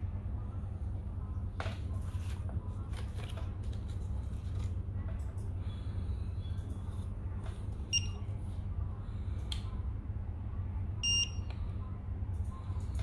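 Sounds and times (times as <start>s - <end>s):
steady low hum: 0.0s - 13.0s
short electronic beeps: 7.9s - 8.2s, 11.0s - 11.4s.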